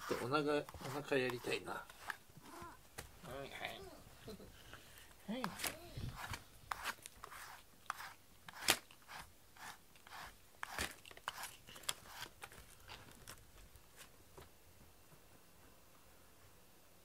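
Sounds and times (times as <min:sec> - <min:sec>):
brush scratching through fur: 0:00.0 - 0:02.7, 0:05.3 - 0:12.3.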